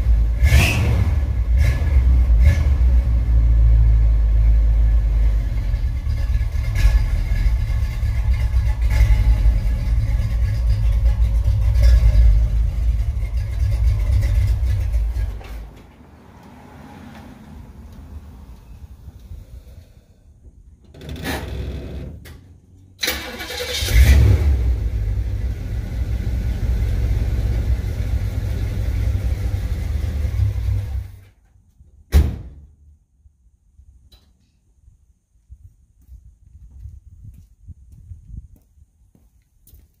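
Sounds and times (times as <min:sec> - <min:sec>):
low rumble: 0:00.0 - 0:16.7
car engine cranking and running: 0:00.0 - 0:31.3
footsteps on concrete: 0:35.9 - 0:40.0.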